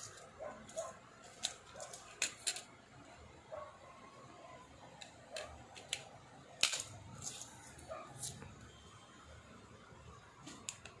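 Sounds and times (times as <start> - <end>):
plastic parts clicking: 0.0 - 2.7, 4.9 - 7.5.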